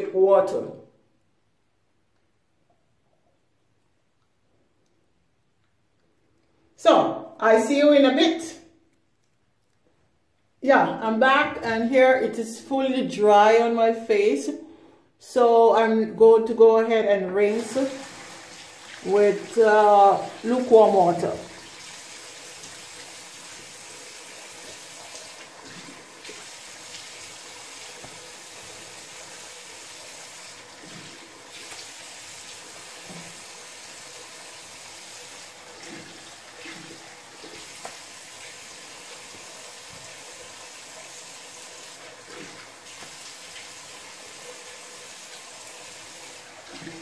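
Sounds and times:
tap running into sink: 27.9s - 28.8s.

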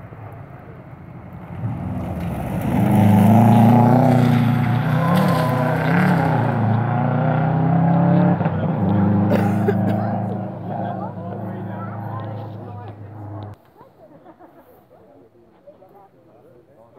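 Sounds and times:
rally car engine revving: 1.2s - 13.6s.

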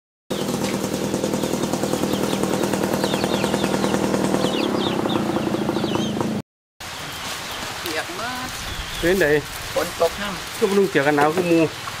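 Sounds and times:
small engine running: 0.3s - 6.4s.

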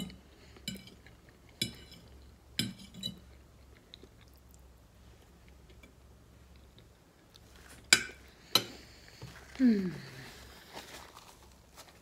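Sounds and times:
faint chewing: 3.2s - 7.8s.

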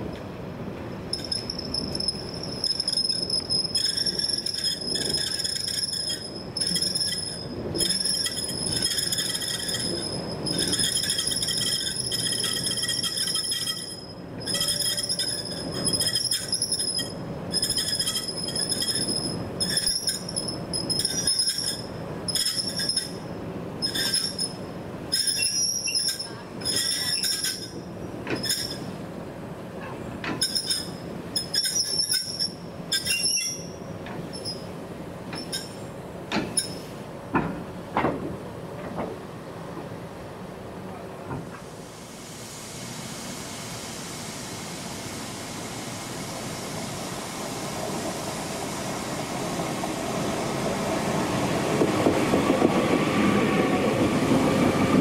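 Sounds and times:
passing train rumble: 0.0s - 55.0s
train wheels squealing on rails: 1.1s - 29.0s, 29.8s - 37.1s.

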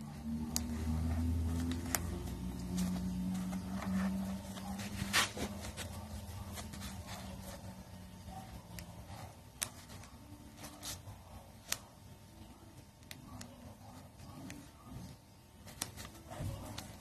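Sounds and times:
low background hum: 0.0s - 17.0s
needle and thread through cloth: 0.1s - 7.9s
fabric rustling: 0.7s - 7.8s.

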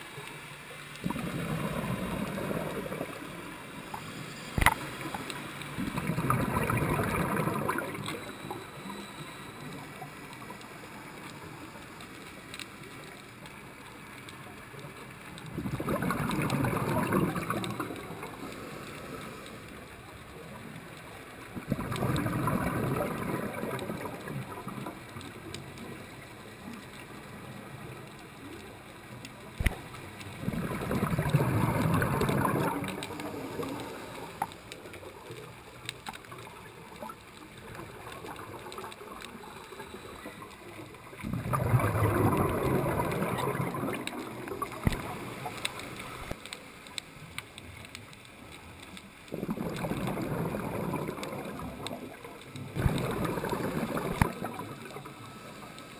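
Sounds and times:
diver's exhaled bubbles rushing: 1.0s - 3.4s, 5.8s - 8.3s, 15.5s - 18.5s, 21.6s - 25.0s, 29.6s - 33.8s, 41.2s - 45.6s, 49.3s - 55.2s.

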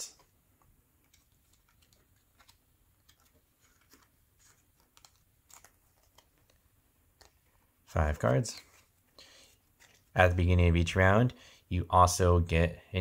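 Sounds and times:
trading cards clicking and rustling: 0.0s - 10.4s.

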